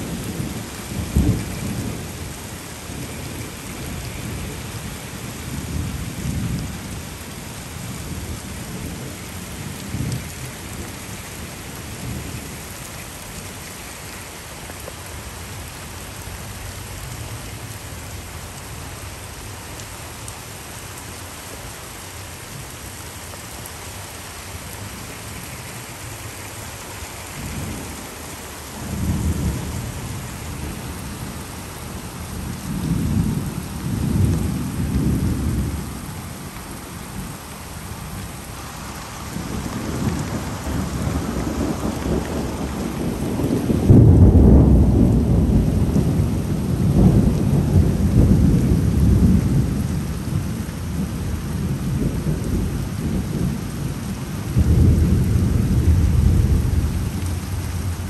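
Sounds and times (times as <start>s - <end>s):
heavy rain: 0.0s - 58.0s
thunder rumbling: 39.3s - 58.0s.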